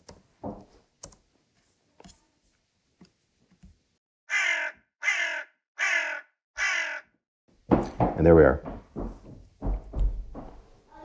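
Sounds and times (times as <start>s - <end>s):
keyboard and mouse clicks: 1.0s - 1.2s
crow cawing: 4.3s - 7.2s.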